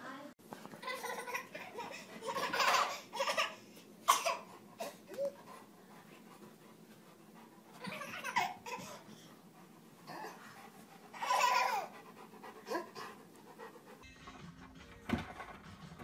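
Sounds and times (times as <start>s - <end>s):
baby laughing: 0.8s - 5.4s, 7.8s - 9.1s, 11.1s - 12.0s.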